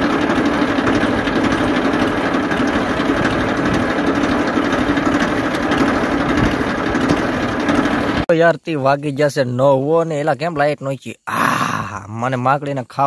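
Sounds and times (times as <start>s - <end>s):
tractor engine idling: 0.0s - 8.5s.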